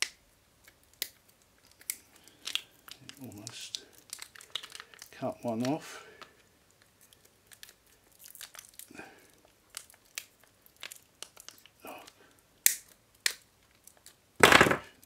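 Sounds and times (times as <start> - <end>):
foil crinkling: 1.6 - 11.8
sharp snaps: 9.8 - 13.4.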